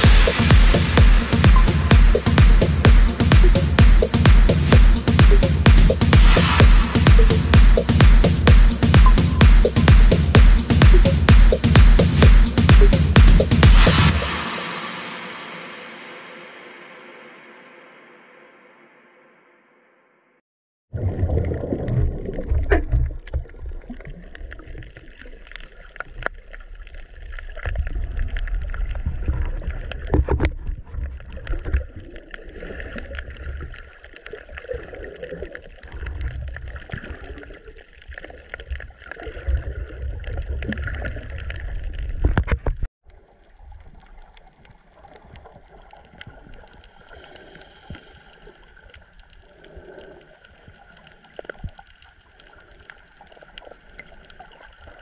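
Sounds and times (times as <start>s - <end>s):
low underwater rumble: 0.0s - 17.0s, 21.0s - 55.0s
underwater hiss: 14.1s - 17.5s, 46.3s - 51.6s
underwater sloshing and bubbling: 20.9s - 55.0s.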